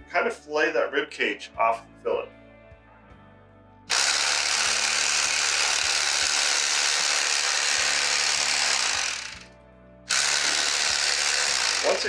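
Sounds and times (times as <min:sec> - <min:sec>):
electric knife buzzing: 0:03.9 - 0:09.5, 0:10.1 - 0:12.0.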